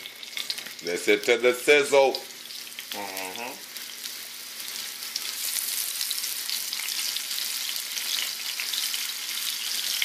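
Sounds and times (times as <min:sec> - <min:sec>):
shrimp sizzling in a frying pan: 0:00.0 - 0:10.0.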